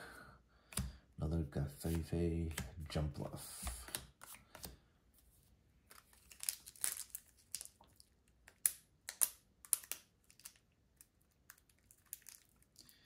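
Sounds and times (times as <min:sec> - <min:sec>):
foil wrapper crinkling: 0:05.9 - 0:08.0.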